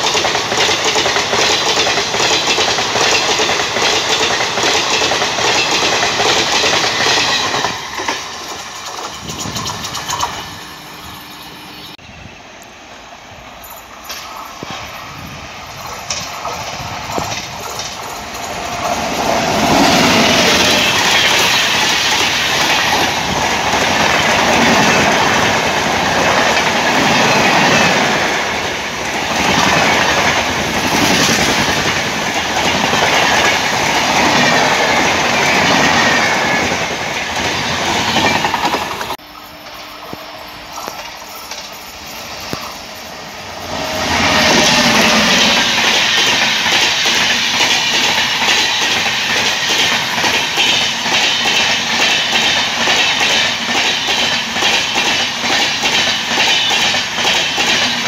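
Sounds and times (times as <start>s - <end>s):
wheels clattering over rails: 0.0s - 11.5s
distant train approaching: 0.0s - 58.0s
train passing at speed: 0.0s - 58.0s.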